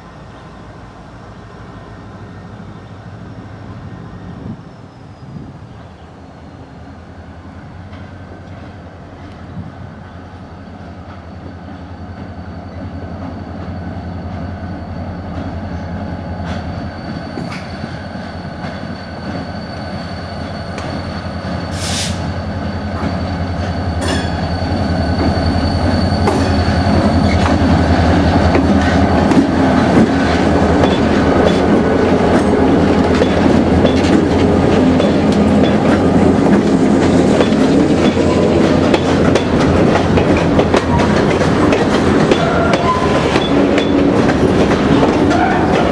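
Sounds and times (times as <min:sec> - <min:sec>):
diesel locomotive engine drone: 0:00.0 - 0:45.9
freight car wheels clicking on rail: 0:28.4 - 0:45.9.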